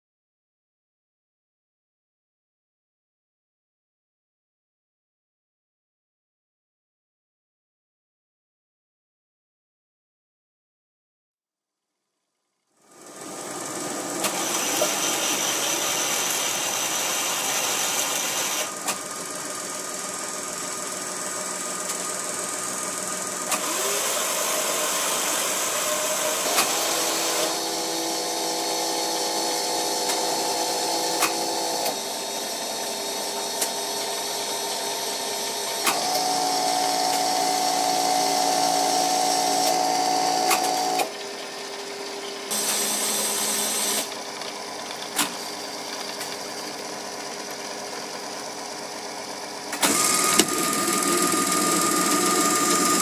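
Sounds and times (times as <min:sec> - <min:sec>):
small electric motors whining: 0:13.0 - 0:19.0, 0:21.8 - 0:41.2, 0:42.5 - 0:53.0.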